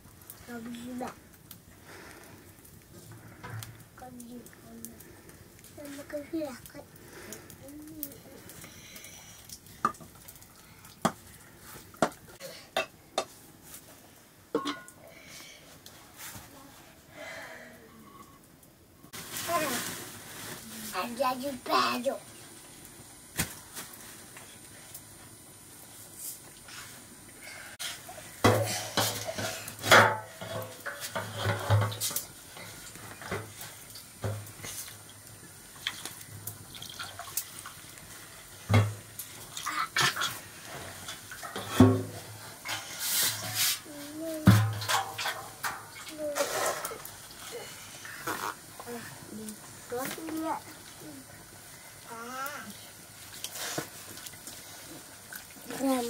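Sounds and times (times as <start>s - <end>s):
faint steady hiss: 0.0s - 56.0s
metal can clanking: 14.5s - 15.0s, 28.4s - 32.2s, 44.4s - 47.1s
utensil clinking on metal pot: 14.5s - 15.0s.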